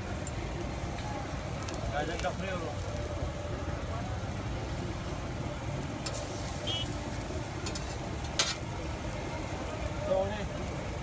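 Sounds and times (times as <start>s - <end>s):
sandwich frying on a griddle: 0.0s - 11.0s
metal spatula scraping and clinking: 7.6s - 8.6s.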